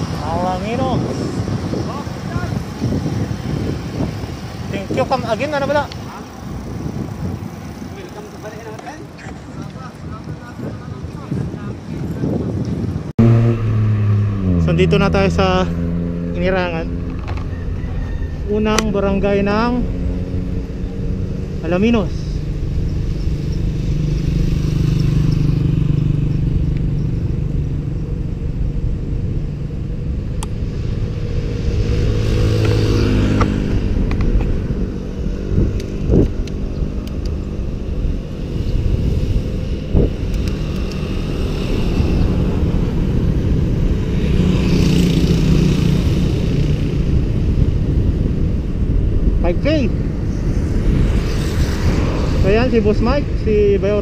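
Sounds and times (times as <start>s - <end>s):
road rumble: 0.0s - 54.0s
wind buffeting microphone: 0.0s - 54.0s
vehicle engine passing by: 13.0s - 54.0s.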